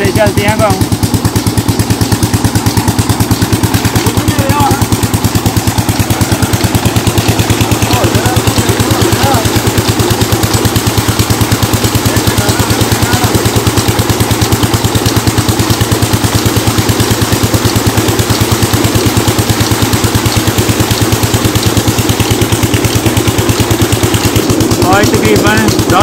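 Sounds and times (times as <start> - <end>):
pump engine thudding: 0.0 - 26.0
water gushing into a tank: 0.0 - 26.0.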